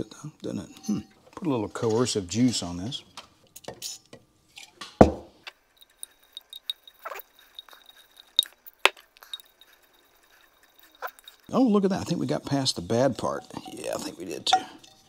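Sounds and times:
thump: 5.0s - 5.3s.

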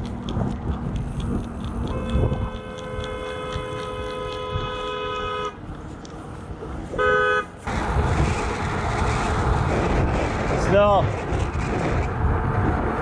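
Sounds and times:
car passing: 0.0s - 13.0s
car horn honking: 1.9s - 5.6s, 7.0s - 7.5s.

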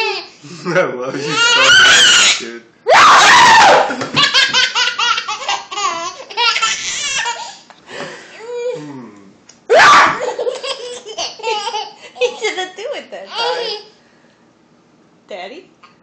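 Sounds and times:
baby laughing: 1.2s - 2.4s, 3.9s - 7.6s, 10.2s - 12.6s, 13.3s - 13.9s.

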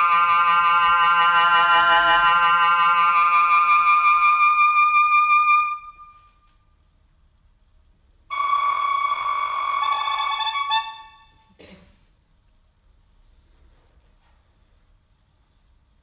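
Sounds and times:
held instrument notes: 0.0s - 6.6s, 8.3s - 11.5s.

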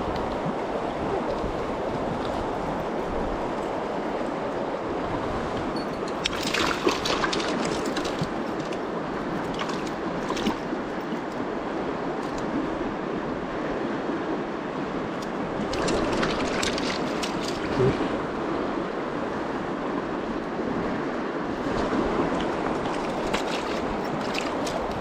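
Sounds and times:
river running over stones: 0.0s - 25.0s
fish splashing in a net: 6.2s - 8.8s, 9.4s - 10.7s, 15.6s - 17.8s, 22.8s - 25.0s.

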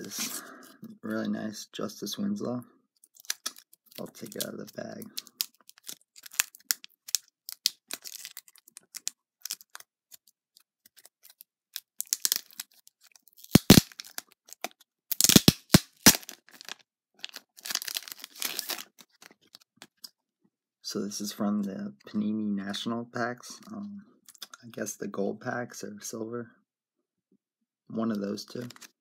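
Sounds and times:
plastic bag crinkling: 3.1s - 10.2s, 10.9s - 19.7s.

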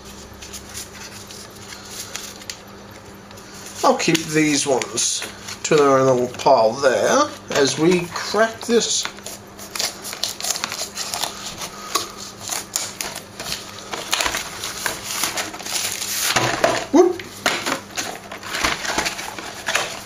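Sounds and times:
plastic wrap crinkling: 0.1s - 20.0s
knife slitting plastic wrap: 7.0s - 20.0s.

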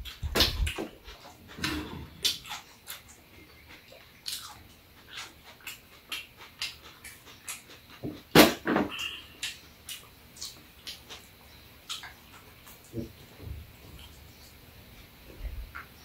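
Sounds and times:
eating and sipping noises: 0.0s - 16.0s.

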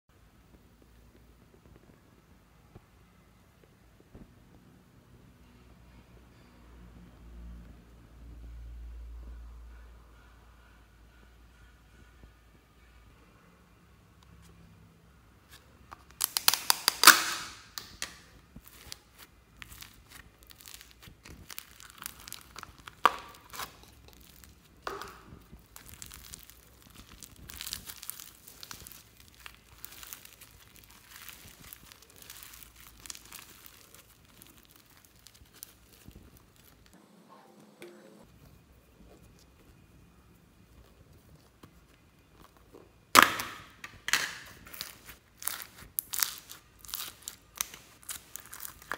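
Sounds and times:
slime crackling and popping: 15.5s - 37.0s, 39.3s - 48.9s.

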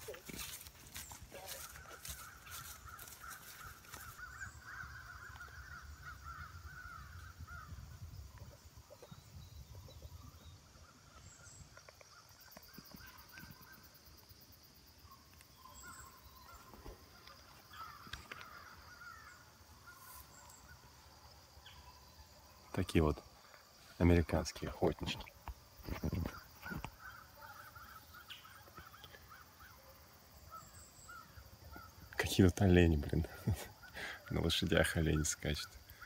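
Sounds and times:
distant foxhounds baying: 0.0s - 7.7s, 26.2s - 32.0s.

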